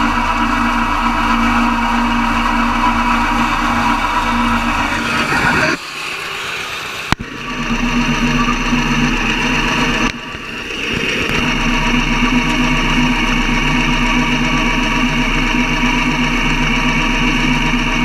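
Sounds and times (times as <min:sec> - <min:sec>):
flail mower rotor whirring: 0:00.0 - 0:18.0
tractor engine running under load: 0:00.0 - 0:18.0.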